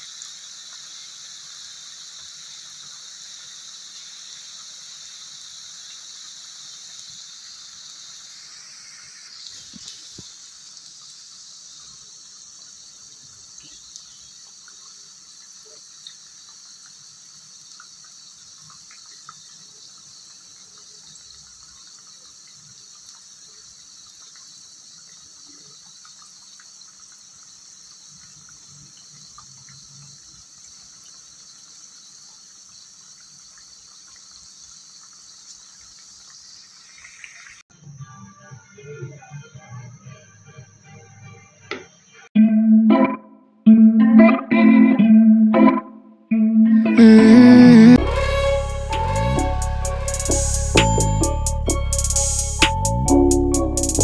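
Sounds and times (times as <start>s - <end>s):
food deep-frying in oil: 0.0s - 38.0s.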